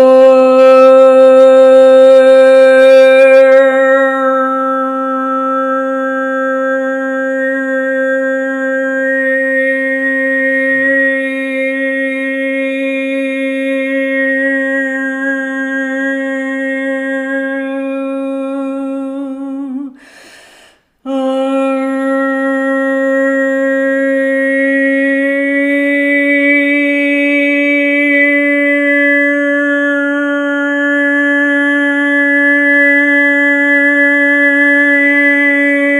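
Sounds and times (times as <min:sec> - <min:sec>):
woman singing a held tone: 0:00.0 - 0:20.1, 0:21.0 - 0:35.9
woman breathing in: 0:20.0 - 0:21.0.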